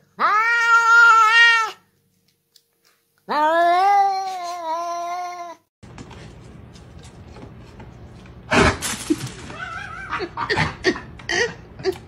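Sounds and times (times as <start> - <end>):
cat meowing: 0.2 - 1.8, 3.3 - 5.6.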